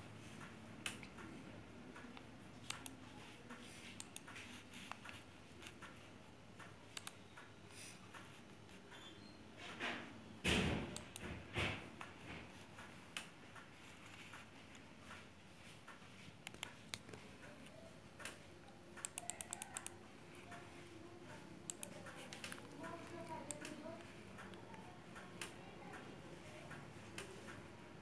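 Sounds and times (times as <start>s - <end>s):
laptop keys and mouse clicking: 0.2s - 9.1s, 10.5s - 11.4s, 12.0s - 27.7s.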